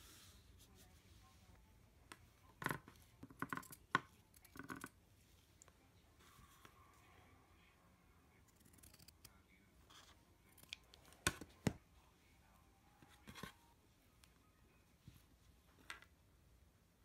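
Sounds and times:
scissors snipping felt: 8.5 - 9.3
scissors blades clicking: 8.6 - 9.2.

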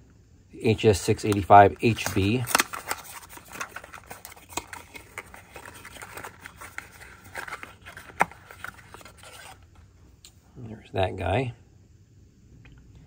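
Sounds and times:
cardboard rustling and scraping: 1.8 - 9.8.

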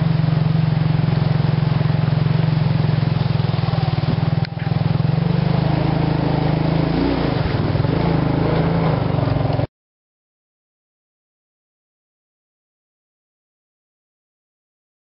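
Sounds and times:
atv engine running: 0.0 - 9.7.

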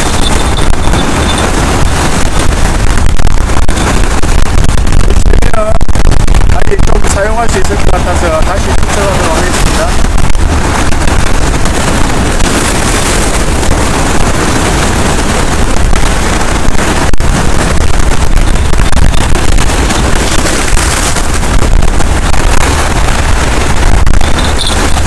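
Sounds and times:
wind buffeting microphone: 0.0 - 25.0
waves breaking on rocks: 7.1 - 15.7, 19.4 - 22.2.

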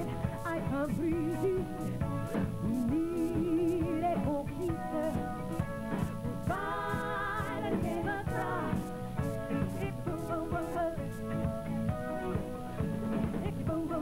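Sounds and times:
person singing with vibrato: 0.0 - 2.0, 2.6 - 9.2, 9.8 - 11.2
drums keeping a steady beat: 0.0 - 13.9.

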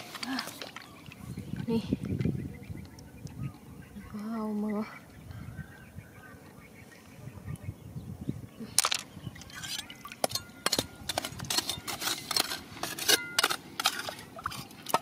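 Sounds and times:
hand tool scraping against rocks: 8.8 - 15.0.

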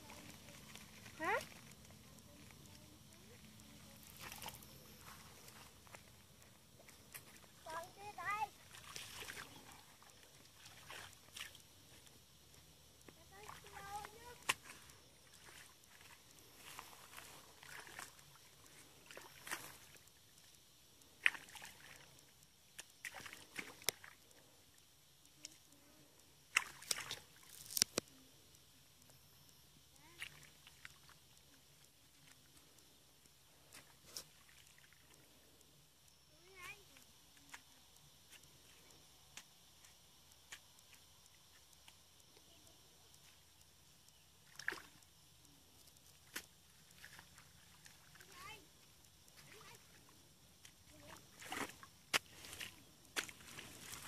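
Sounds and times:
splashing in muddy water: 8.6 - 11.6, 14.4 - 20.0, 21.2 - 22.1, 23.0 - 24.2, 26.5 - 27.5, 44.4 - 45.0, 47.0 - 48.2, 51.0 - 54.0.

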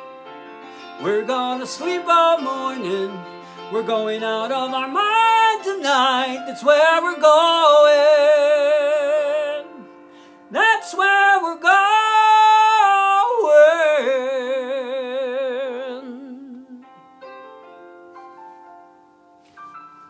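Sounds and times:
man singing high notes: 1.0 - 16.9.

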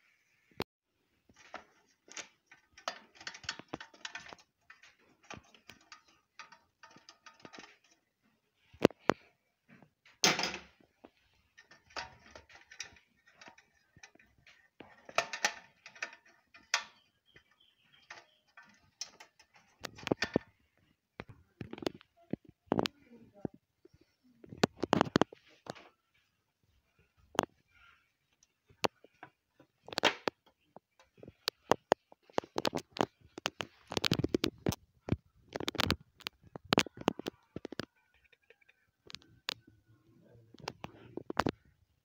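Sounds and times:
plastic enclosure clicks and rattles: 1.3 - 8.1, 10.2 - 20.6, 29.8 - 38.0.

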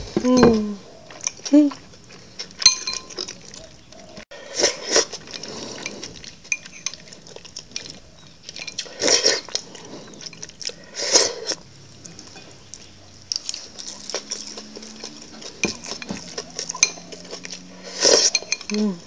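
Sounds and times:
chopsticks clinking on glass: 2.6 - 3.7, 5.2 - 9.6, 13.5 - 18.9
loud slurping: 8.8 - 11.7, 13.6 - 18.5.

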